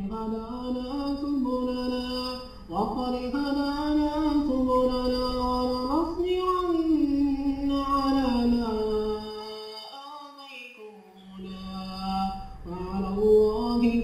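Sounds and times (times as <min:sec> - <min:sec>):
man reciting melodically: 0:00.0 - 0:14.0.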